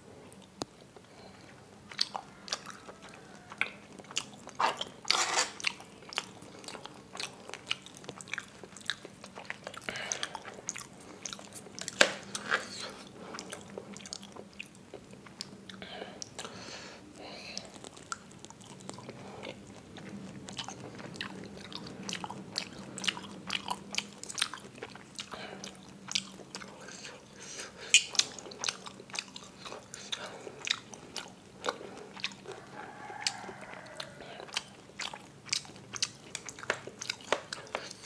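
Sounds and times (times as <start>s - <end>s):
chewing: 0.2s - 16.6s, 17.2s - 38.0s
cutlery clicking and scraping on plate: 5.1s - 5.6s.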